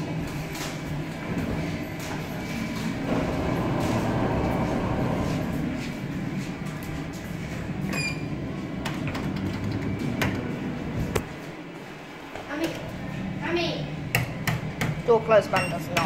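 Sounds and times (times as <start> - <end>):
elevator rumbling: 0.0 - 12.2.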